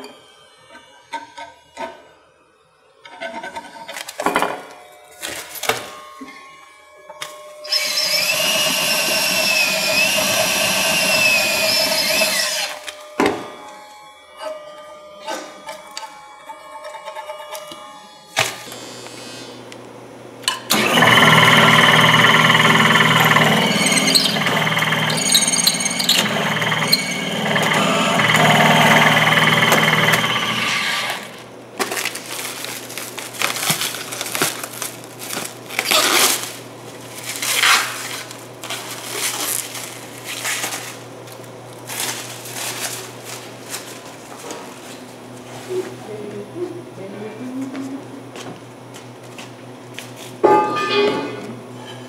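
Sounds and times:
power drill boring into metal: 0:07.6 - 0:12.8, 0:20.7 - 0:31.4.

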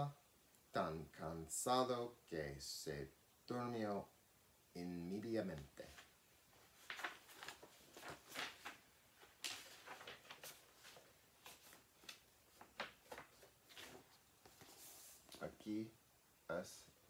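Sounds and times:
book pages rustling: 0:05.6 - 0:15.5.

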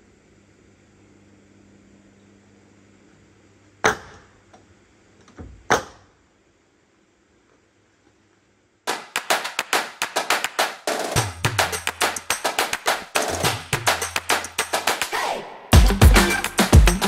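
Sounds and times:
nails driven into wood: 0:03.8 - 0:04.4, 0:05.2 - 0:06.2
drum-heavy background music: 0:08.9 - 0:17.0.

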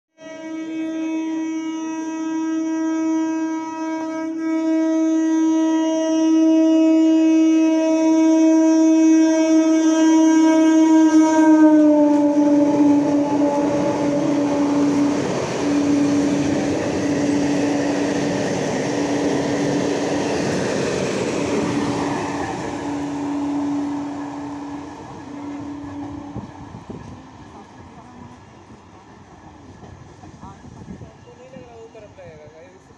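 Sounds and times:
train horn: 0:00.1 - 0:20.7, 0:21.4 - 0:28.8
train coaches clattering on rails: 0:24.9 - 0:32.1.

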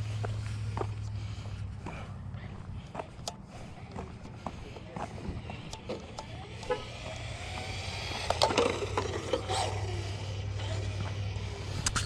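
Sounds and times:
small tyres rolling on pavement: 0:03.9 - 0:12.0
electric motor running: 0:05.4 - 0:12.0.

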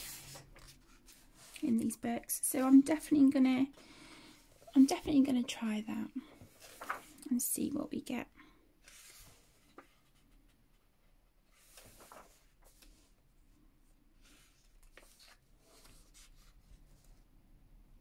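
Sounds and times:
paper pages rustling: 0:00.0 - 0:01.6, 0:06.2 - 0:07.3, 0:08.8 - 0:10.8, 0:11.4 - 0:13.2, 0:14.2 - 0:17.2.

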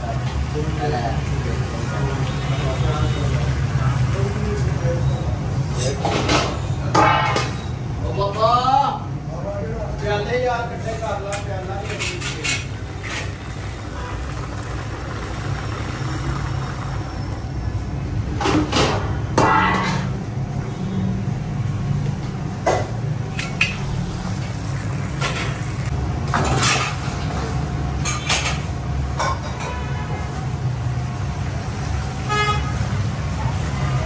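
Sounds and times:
steel bowls knocking and clattering: 0:11.3 - 0:17.4.

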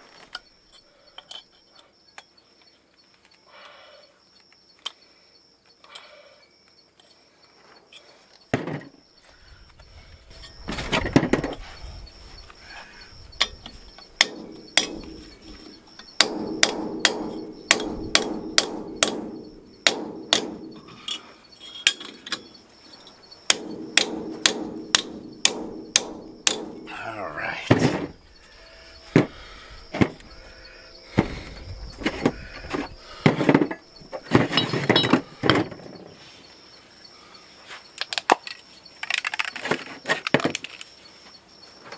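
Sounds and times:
hammer striking steel on anvil: 0:14.2 - 0:21.2, 0:23.5 - 0:27.3.

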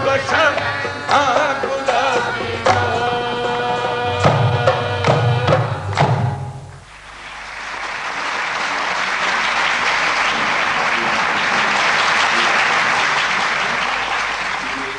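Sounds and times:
qawwali music: 0:00.0 - 0:06.9
drum strokes: 0:00.0 - 0:07.4
audience applause: 0:06.9 - 0:14.9.

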